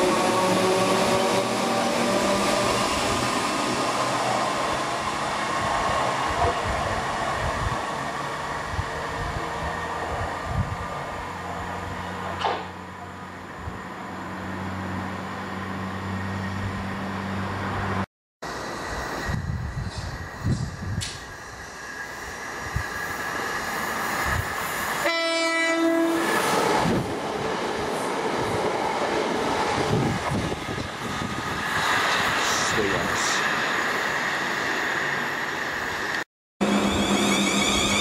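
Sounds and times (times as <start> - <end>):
electric train motor whine: 36.6 - 38.0.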